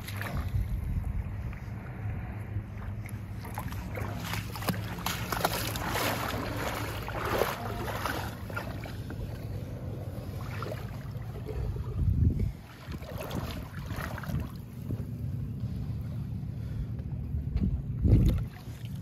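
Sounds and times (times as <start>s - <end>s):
wind on microphone: 0.0s - 4.2s, 9.1s - 15.2s, 17.2s - 18.8s
water splashing against hull: 0.0s - 16.8s, 17.5s - 19.0s
jet ski engine idling: 0.1s - 19.0s.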